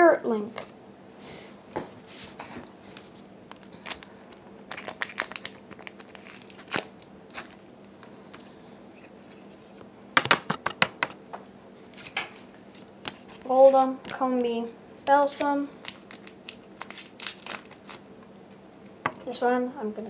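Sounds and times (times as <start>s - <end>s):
wrappers crinkling: 3.0s - 7.7s, 15.8s - 18.0s.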